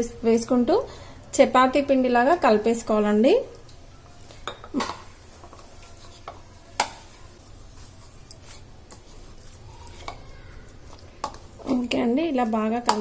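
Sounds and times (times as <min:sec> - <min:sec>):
hand kneading dough: 0:05.2 - 0:13.0.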